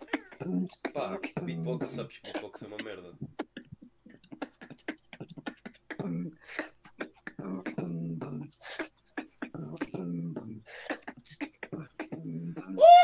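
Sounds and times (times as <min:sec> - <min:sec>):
man beatboxing: 0:00.0 - 0:08.6, 0:09.2 - 0:12.8.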